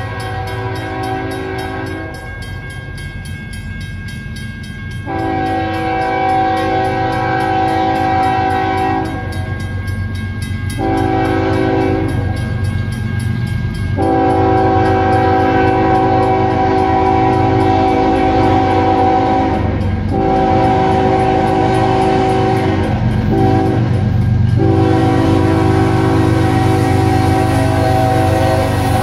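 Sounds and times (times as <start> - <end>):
locomotive air horn: 0.0 - 2.3, 5.1 - 9.4, 10.8 - 12.4, 14.0 - 29.0
locomotive rumble: 0.0 - 29.0.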